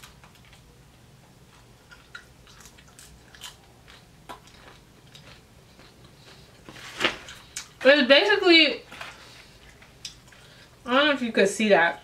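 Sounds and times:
person chewing food: 0.0 - 7.8, 9.0 - 10.8.

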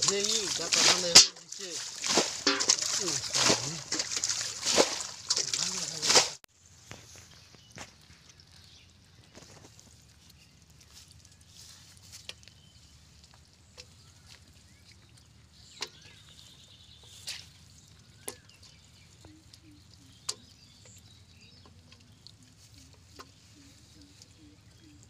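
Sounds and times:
handling wet fishing net: 0.0 - 8.7.

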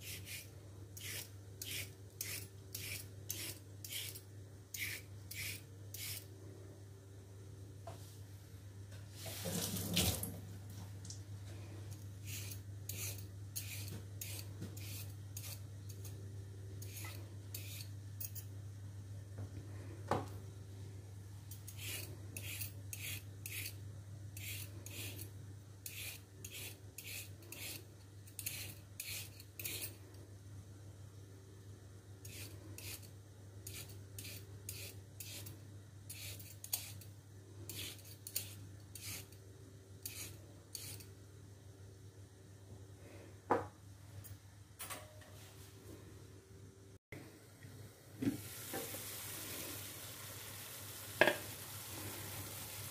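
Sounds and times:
peeler scraping carrot: 0.0 - 6.3, 12.2 - 16.2, 16.8 - 18.4, 21.6 - 23.8, 24.4 - 30.0, 32.2 - 35.5, 36.1 - 37.1, 37.7 - 39.4, 40.0 - 41.1.

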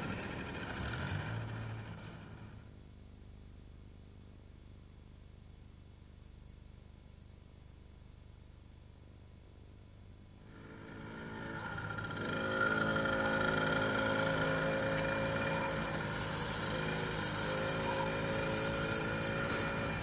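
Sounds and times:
minibike engine running: 0.0 - 2.7, 10.4 - 20.0.

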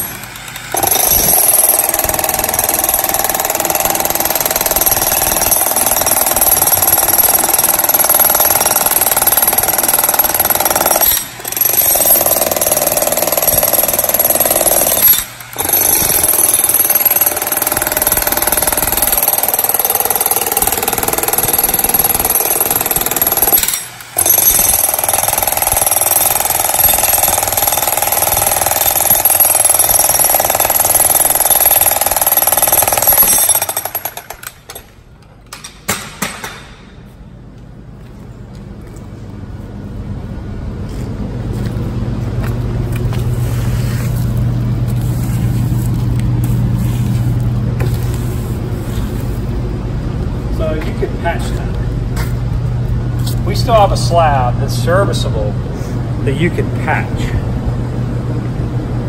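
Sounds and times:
jackhammer hammering concrete: 0.0 - 34.8.

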